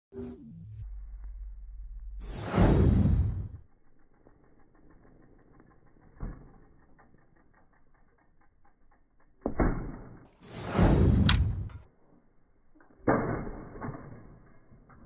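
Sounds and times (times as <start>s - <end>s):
bicycle freewheel ticking: 3.6s - 9.5s.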